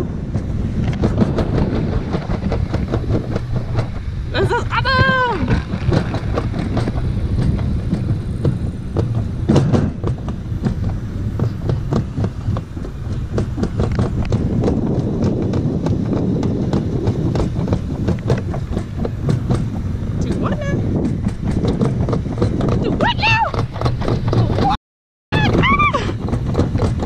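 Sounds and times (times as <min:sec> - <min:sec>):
toboggan clatter: 0:00.0 - 0:27.0
toboggan rumbling down metal track: 0:00.0 - 0:27.0.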